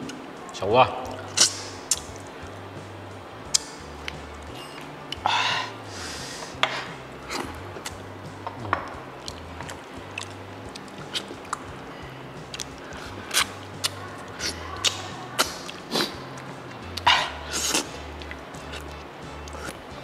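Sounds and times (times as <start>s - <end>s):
background music with bassline: 0.0s - 20.0s
lip smacks and chewing: 1.1s - 2.3s, 7.3s - 11.7s, 12.4s - 19.8s.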